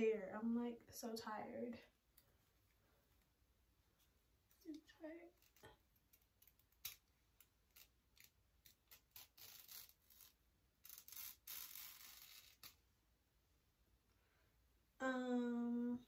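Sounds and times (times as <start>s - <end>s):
lace rustling: 3.9s - 12.8s
small scissors snipping lace: 4.7s - 10.3s.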